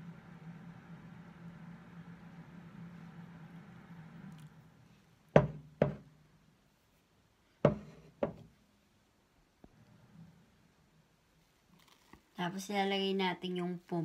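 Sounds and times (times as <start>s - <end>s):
knocks on hard surface: 5.4s - 6.1s, 7.6s - 8.4s.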